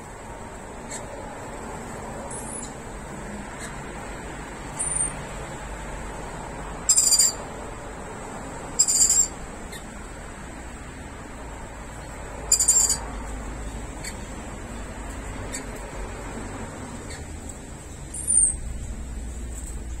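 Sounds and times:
lorikeets chirping and screeching: 0.8 - 1.4, 2.2 - 4.1, 4.7 - 5.3, 6.8 - 7.5, 8.6 - 10.1, 11.9 - 17.4, 18.0 - 18.7.

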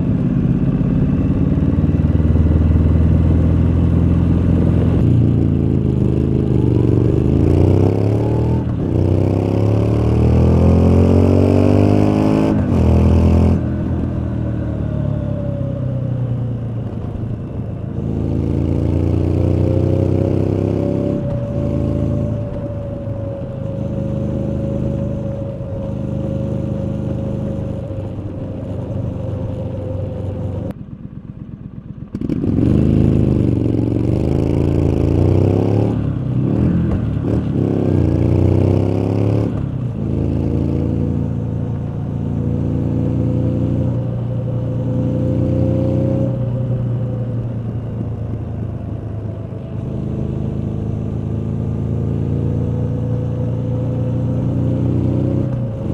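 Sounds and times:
motorcycle exhaust accelerating: 0.0 - 55.9.

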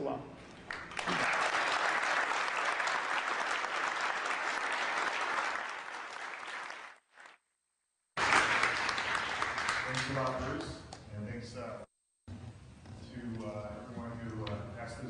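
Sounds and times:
audience applauding: 0.7 - 7.4, 8.2 - 10.6.

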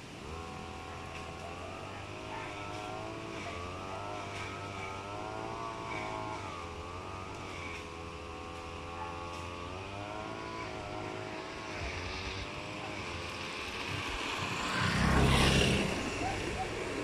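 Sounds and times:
motor engine running: 0.0 - 17.0.

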